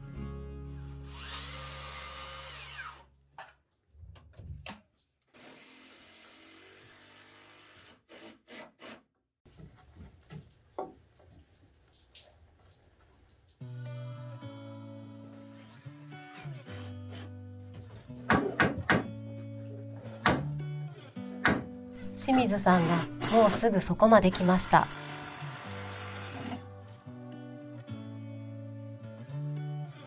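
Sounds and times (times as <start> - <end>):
circular saw cutting timber: 1.0 - 3.1, 5.4 - 9.0, 22.0 - 26.7.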